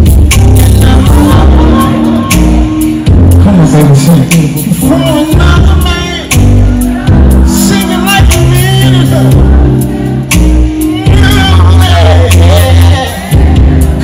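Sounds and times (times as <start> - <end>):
live band with bass and drums: 0.0 - 14.0
person singing: 0.0 - 14.0.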